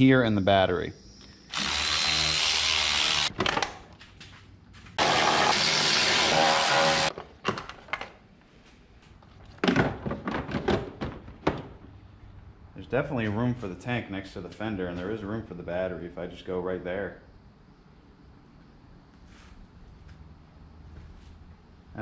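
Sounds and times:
electric ratchet running: 0:01.5 - 0:03.3, 0:05.0 - 0:07.1.

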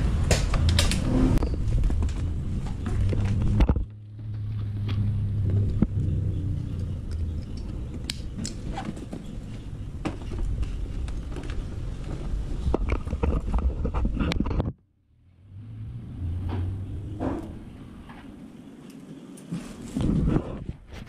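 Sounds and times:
steady low rumble: 0:00.0 - 0:18.9
rustling and clicking: 0:00.2 - 0:14.8.

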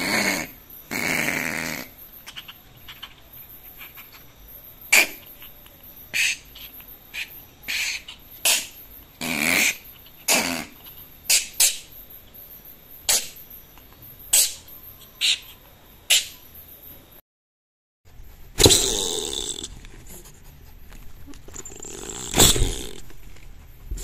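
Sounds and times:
opossum hissing growl: 0:00.0 - 0:04.1, 0:04.9 - 0:05.4, 0:06.1 - 0:11.7, 0:18.5 - 0:20.6, 0:21.6 - 0:23.0.

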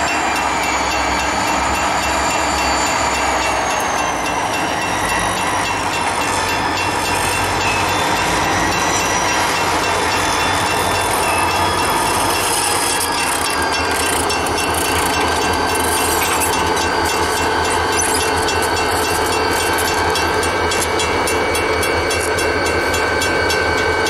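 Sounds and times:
diesel locomotive engines droning: 0:00.0 - 0:24.0.

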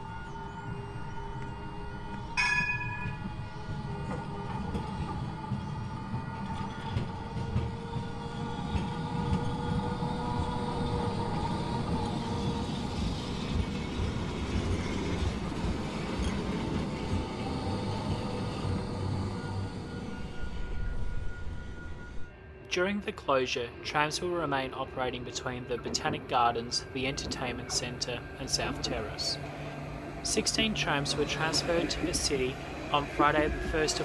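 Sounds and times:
tram bell ding: 0:00.0 - 0:07.8
tram rumbling on track: 0:00.0 - 0:22.3, 0:23.1 - 0:34.0.

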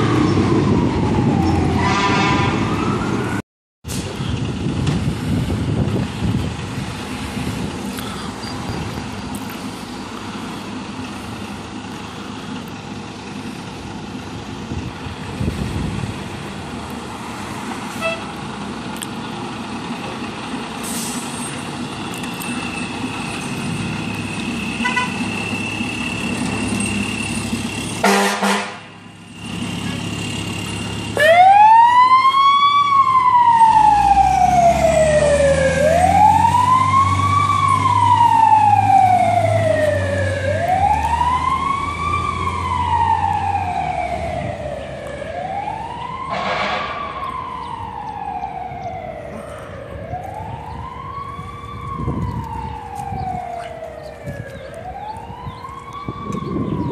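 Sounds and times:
siren wailing: 0:00.0 - 0:03.4, 0:31.1 - 0:56.9
fire engine idling: 0:03.9 - 0:56.9.

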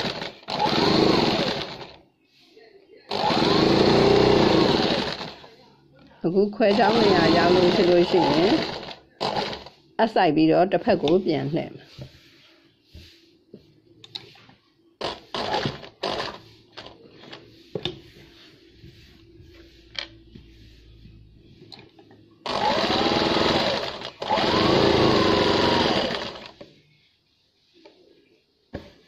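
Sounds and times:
electric sewing machine running: 0:00.0 - 0:02.0, 0:03.1 - 0:05.5, 0:06.7 - 0:09.7, 0:15.0 - 0:16.4, 0:22.4 - 0:26.6.

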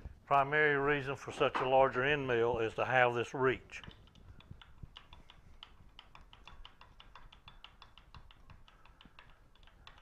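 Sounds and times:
milling machine metallic ticks: 0:03.8 - 0:10.0.

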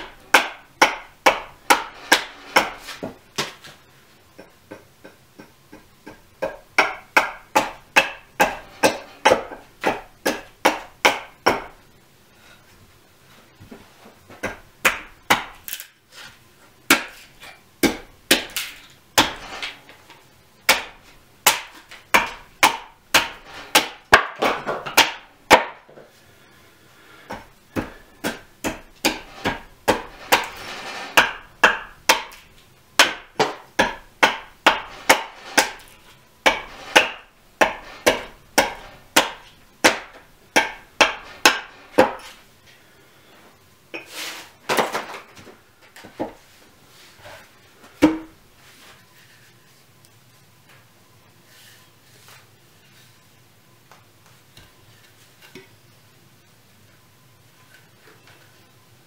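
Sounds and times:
axe chopping wood: 0:00.0 - 0:03.7, 0:04.4 - 0:11.8, 0:14.4 - 0:15.9, 0:16.9 - 0:19.8, 0:20.7 - 0:25.9, 0:27.3 - 0:42.4.

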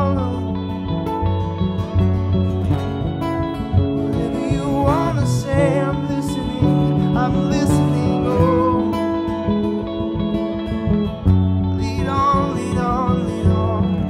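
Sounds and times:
man singing: 0:00.0 - 0:00.9, 0:04.0 - 0:09.6, 0:11.7 - 0:14.0
strummed acoustic guitar: 0:00.0 - 0:14.0.

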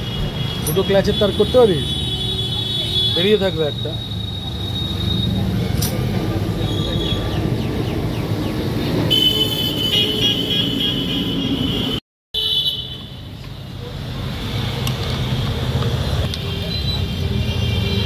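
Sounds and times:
vehicle engines running: 0:03.4 - 0:09.1
car horns honking: 0:09.1 - 0:13.2.

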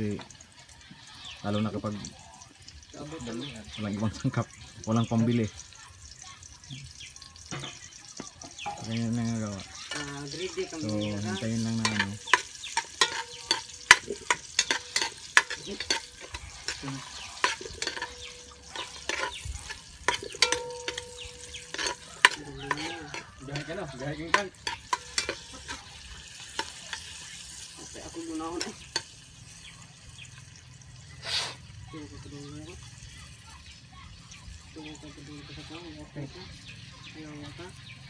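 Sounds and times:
sizzling in hot oil: 0:00.0 - 0:38.0
metal ladle scraping a pot: 0:08.5 - 0:29.3.

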